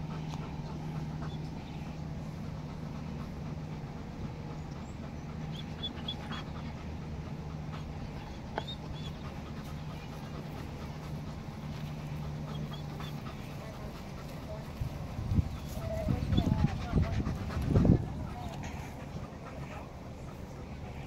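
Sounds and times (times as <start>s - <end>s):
dog panting: 0.0s - 21.0s.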